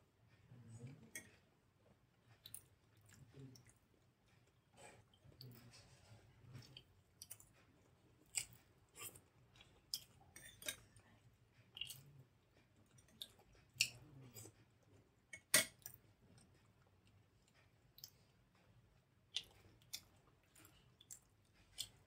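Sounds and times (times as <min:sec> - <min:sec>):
wet chewing: 0:11.7 - 0:12.2, 0:19.3 - 0:22.0.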